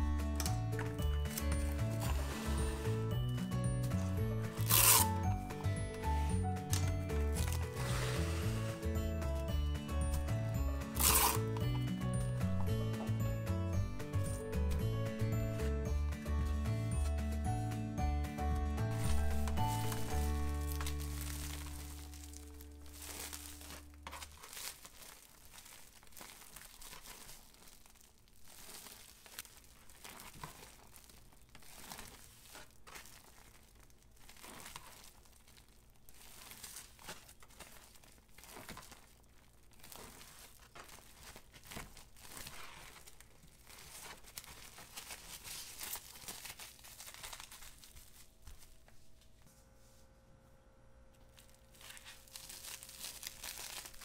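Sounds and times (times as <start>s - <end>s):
plastic cling film crinkling: 0.0s - 13.2s, 14.0s - 49.4s, 51.2s - 54.0s.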